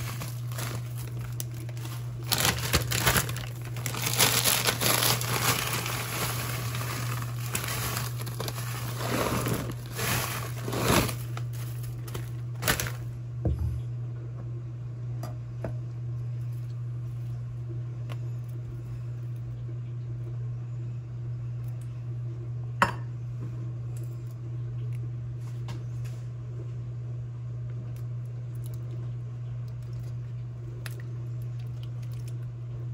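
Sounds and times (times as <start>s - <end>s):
frozen kernels rattling into crock: 0.0s - 13.0s
plastic bag crinkling: 0.0s - 13.1s
low steady hum: 0.0s - 32.9s.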